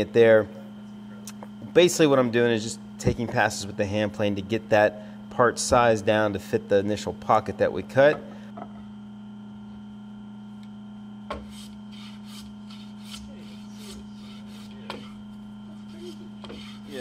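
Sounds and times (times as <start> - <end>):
steady background hum: 0.0 - 17.0
hand plane rasping on wood: 11.5 - 15.2, 15.8 - 17.0.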